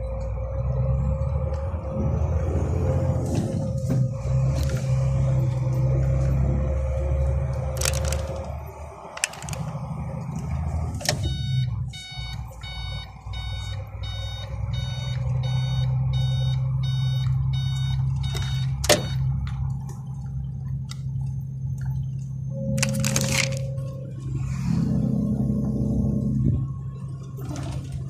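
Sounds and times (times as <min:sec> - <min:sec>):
diesel truck engine running: 0:00.0 - 0:28.0
electronic beeps: 0:11.1 - 0:19.3, 0:22.4 - 0:25.8.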